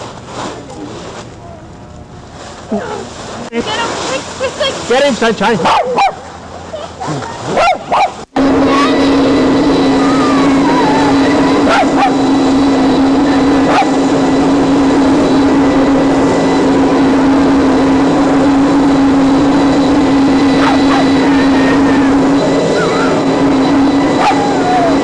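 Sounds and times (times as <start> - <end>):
steady hum and hiss: 0.0 - 25.0
dog barking: 5.6 - 6.2, 7.5 - 8.2, 11.6 - 12.2, 13.6 - 14.0, 20.6 - 21.2, 24.2 - 24.5.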